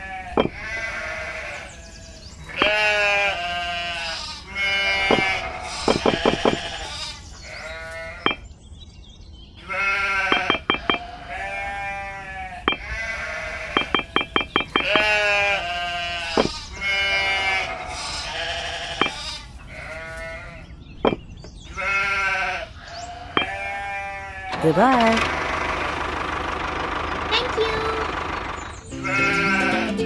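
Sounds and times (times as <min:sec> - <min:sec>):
sheep bleating: 0:00.0 - 0:08.4, 0:09.6 - 0:20.7, 0:21.7 - 0:25.2, 0:28.9 - 0:30.0.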